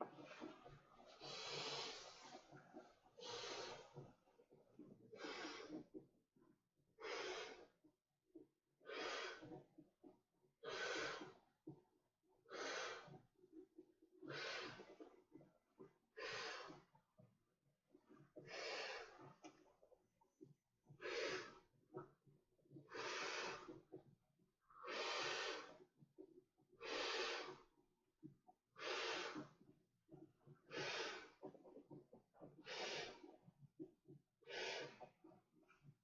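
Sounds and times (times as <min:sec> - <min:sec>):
person breathing: 0:01.1 - 0:02.6, 0:03.2 - 0:04.1, 0:05.1 - 0:05.9, 0:07.0 - 0:07.7, 0:08.8 - 0:09.6, 0:10.6 - 0:11.4, 0:12.5 - 0:13.1, 0:18.5 - 0:19.3, 0:21.0 - 0:21.6, 0:22.9 - 0:23.7, 0:24.8 - 0:25.8, 0:26.8 - 0:27.7, 0:28.8 - 0:29.5, 0:30.7 - 0:31.4, 0:32.6 - 0:33.3, 0:34.4 - 0:35.0.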